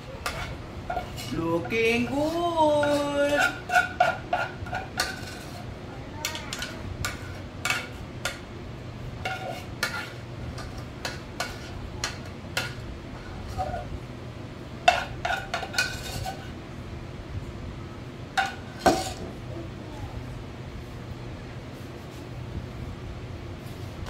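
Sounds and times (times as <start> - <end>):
utensil clinking and scraping bowl: 0.0 - 8.5, 9.2 - 13.9, 14.8 - 16.6, 18.3 - 19.4.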